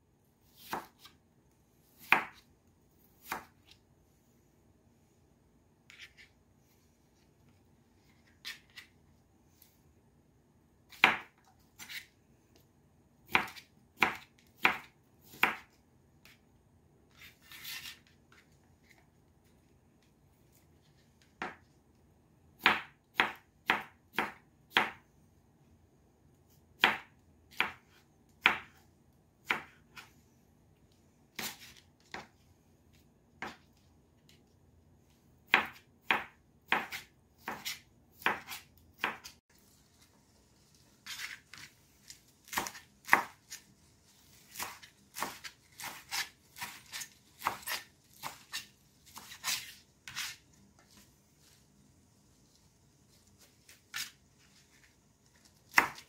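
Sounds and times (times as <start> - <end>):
knife chopping on plastic board: 0.6 - 1.2, 2.0 - 2.4, 3.2 - 3.8, 10.9 - 12.0, 13.2 - 16.4, 21.4 - 21.6, 22.6 - 25.0, 26.8 - 28.8, 29.4 - 30.1, 33.4 - 33.7, 35.5 - 39.4, 42.4 - 43.6, 44.5 - 50.4, 55.7 - 56.0.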